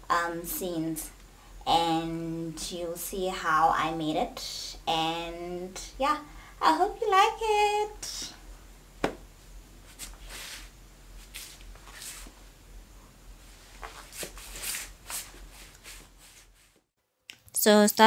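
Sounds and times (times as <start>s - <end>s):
steady low hum: 0.0s - 16.7s
tulle dress swishing: 9.9s - 12.4s, 13.6s - 16.8s.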